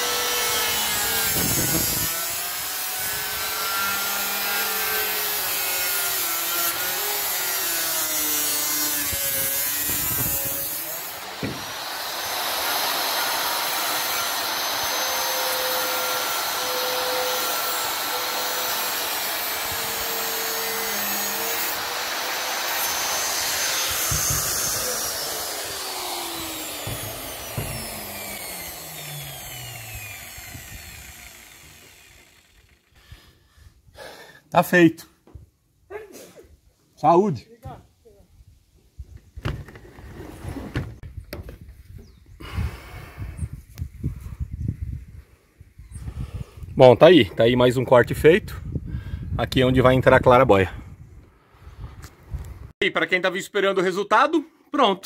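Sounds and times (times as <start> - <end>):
circular saw cutting sheet steel: 0.0 - 32.9.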